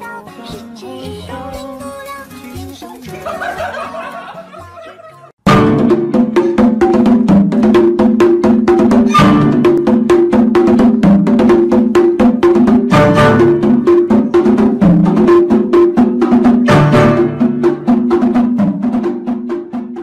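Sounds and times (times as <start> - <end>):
fast clicking percussive beat: 0.5 - 4.6, 5.4 - 20.0
simple melody: 12.4 - 18.4.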